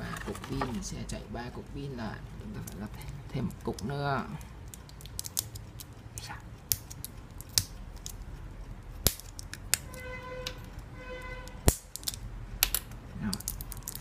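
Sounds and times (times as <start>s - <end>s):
batteries clicking together: 4.6s - 5.9s, 11.6s - 14.0s.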